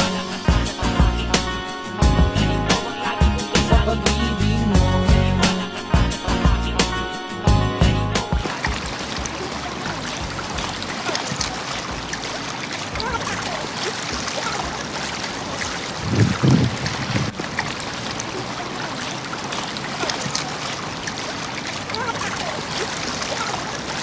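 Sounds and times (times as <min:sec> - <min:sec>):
water lapping against shore: 0:08.4 - 0:24.0.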